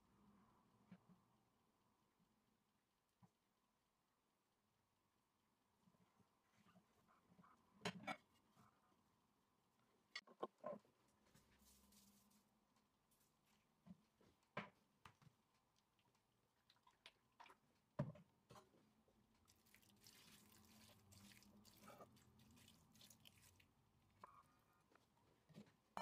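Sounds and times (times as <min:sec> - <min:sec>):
oil trickling into a pan: 0:19.4 - 0:23.8.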